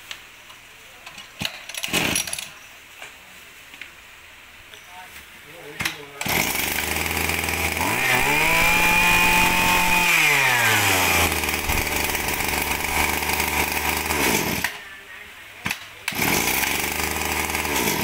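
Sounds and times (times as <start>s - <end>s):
brush-cutter engine revving: 6.2s - 14.8s, 16.1s - 18.0s.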